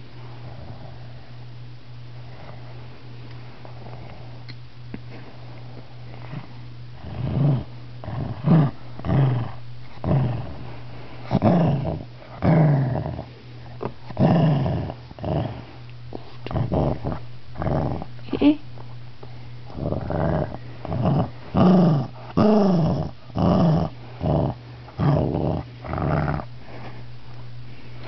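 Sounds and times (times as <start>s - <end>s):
small dog growling: 6.2s - 18.5s, 19.7s - 26.9s.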